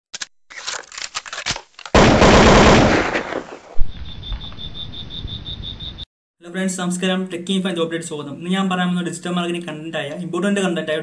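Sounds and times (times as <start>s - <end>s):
high pulsing beep: 3.9s - 6.1s.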